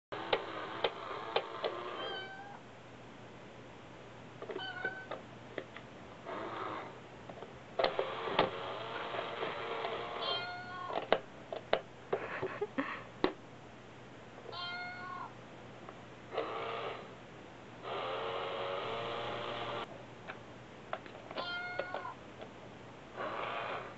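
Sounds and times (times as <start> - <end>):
toy coin bank mechanism running: 0.1 - 2.0, 7.8 - 10.5, 16.4 - 17.0, 17.9 - 19.8
recorded meow: 1.9 - 2.6, 4.6 - 5.2, 10.2 - 11.0, 14.5 - 15.4, 21.4 - 22.2.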